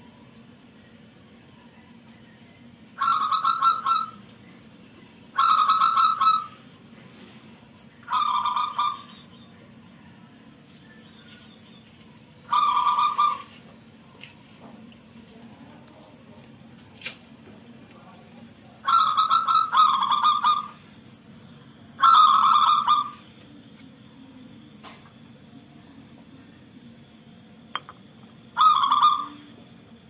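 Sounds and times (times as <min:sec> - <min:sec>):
dove cooing: 0:03.0 - 0:04.4, 0:05.3 - 0:06.6, 0:08.0 - 0:09.4, 0:12.4 - 0:13.8, 0:18.7 - 0:20.8, 0:21.9 - 0:23.4, 0:28.6 - 0:29.5.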